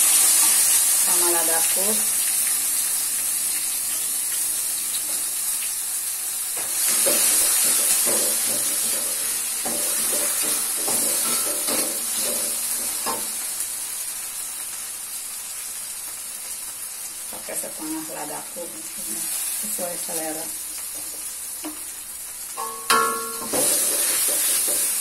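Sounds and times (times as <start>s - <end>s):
food sizzling in hot oil: 0.0s - 25.0s
metal spatula scraping wok: 6.8s - 13.2s, 22.6s - 25.0s.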